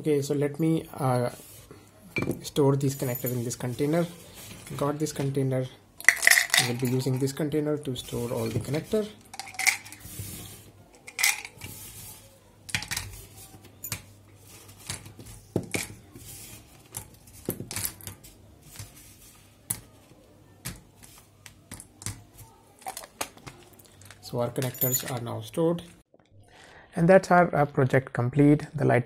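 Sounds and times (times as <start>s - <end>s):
connectors clattering into plastic container: 6.0s - 7.3s, 8.3s - 10.1s, 11.0s - 11.8s.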